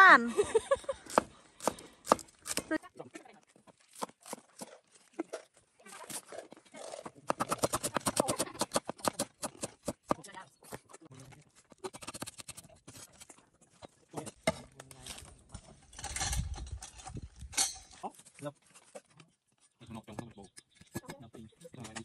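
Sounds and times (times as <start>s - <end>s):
cleaver chopping on wooden board: 1.1s - 2.7s, 7.2s - 10.2s.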